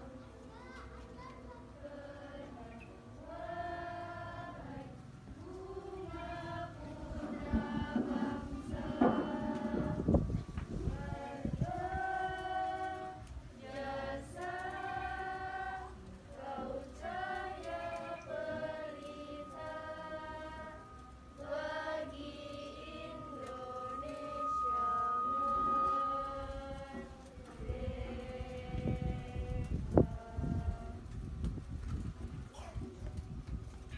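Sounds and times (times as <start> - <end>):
choir singing: 0.0 - 0.5, 1.7 - 31.2
thin high tone: 3.3 - 28.6.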